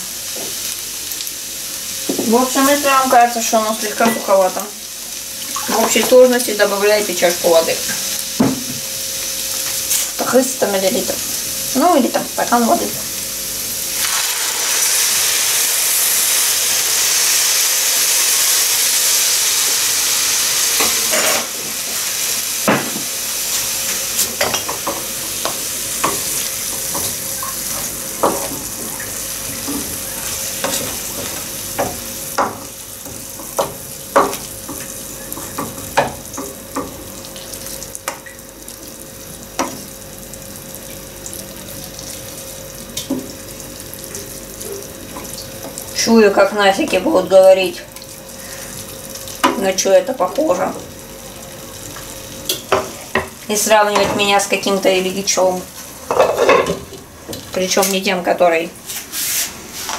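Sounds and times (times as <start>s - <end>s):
water hissing in hot pan: 0.0s - 56.0s
vegetables sizzling: 0.0s - 59.9s
spatula scraping vegetables in pan: 58.9s - 59.9s.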